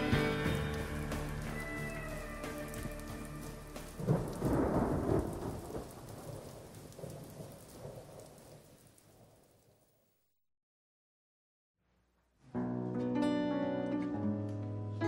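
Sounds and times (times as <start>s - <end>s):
steady rain: 0.0s - 10.2s
thunder roll: 3.9s - 9.8s.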